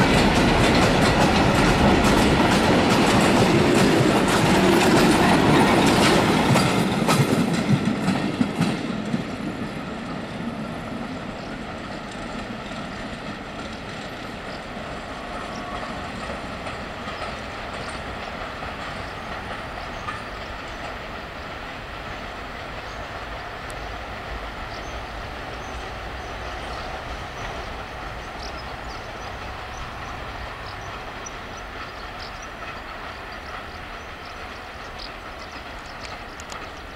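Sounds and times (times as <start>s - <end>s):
train wagons rolling past: 0.0s - 36.9s
wheels clicking over rail joints: 0.0s - 36.9s.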